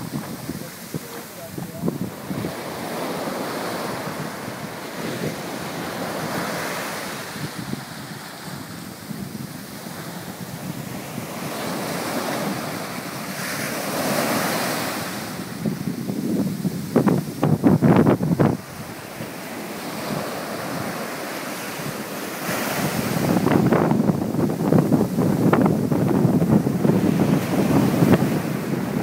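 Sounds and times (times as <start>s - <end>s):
surf washing onto sand: 0.0s - 29.0s
wind on microphone: 0.0s - 29.0s.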